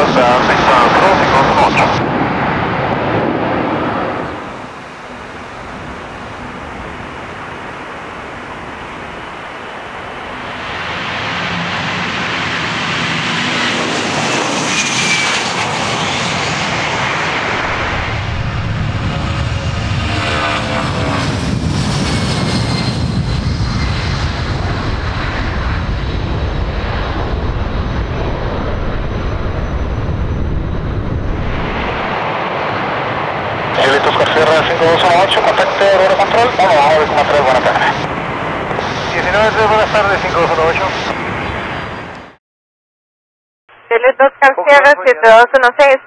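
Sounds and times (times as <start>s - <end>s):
jet whine falling in pitch: 0.0s - 32.9s
jet engines roaring: 0.0s - 42.4s.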